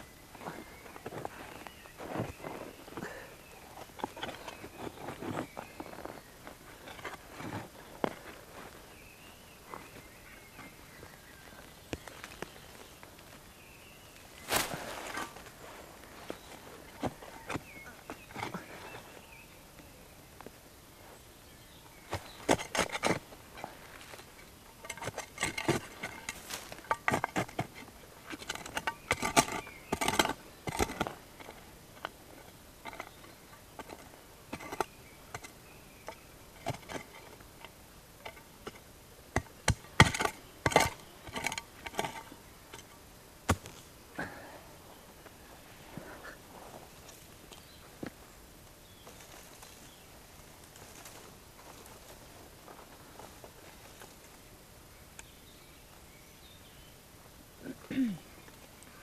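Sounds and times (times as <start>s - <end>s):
hand trowel digging into soil: 22.1s - 35.6s, 43.5s - 43.9s.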